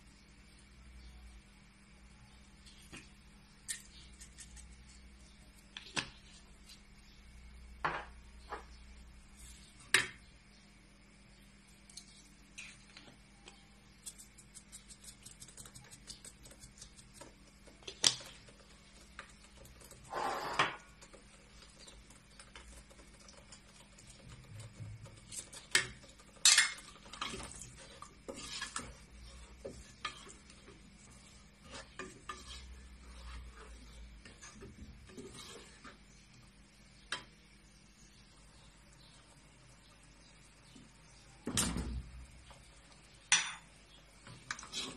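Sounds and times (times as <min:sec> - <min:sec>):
salt shaker ticking: 0:14.0 - 0:20.0
wooden spoon stirring sauce: 0:14.0 - 0:20.1, 0:20.7 - 0:37.4, 0:43.9 - 0:44.9.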